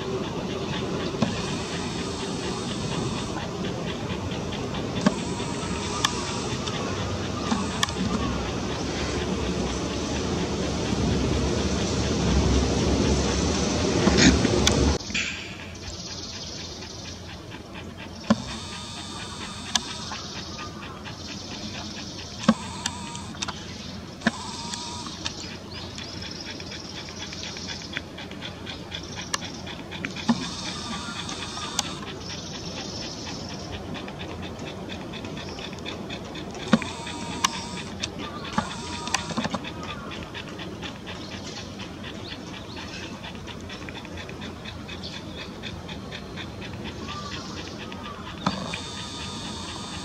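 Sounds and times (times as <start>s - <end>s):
starlings chirping: 0.0s - 12.0s, 15.0s - 50.0s
steady high buzzing: 0.0s - 15.1s, 16.4s - 26.5s, 29.2s - 33.9s, 35.6s - 40.1s, 45.1s - 50.0s.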